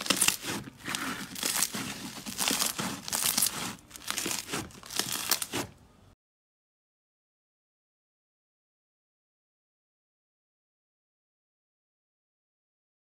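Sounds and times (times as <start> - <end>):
slime crackling when squeezed: 0.0 - 5.7.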